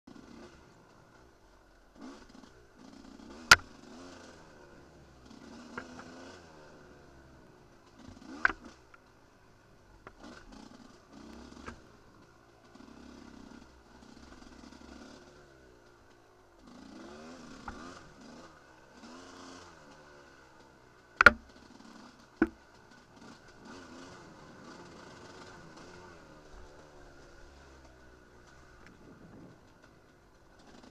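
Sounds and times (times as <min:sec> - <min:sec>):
dirt bike engine revving: 0:00.1 - 0:01.3, 0:01.9 - 0:09.3, 0:10.1 - 0:30.9
sharp knocks: 0:21.2 - 0:21.4.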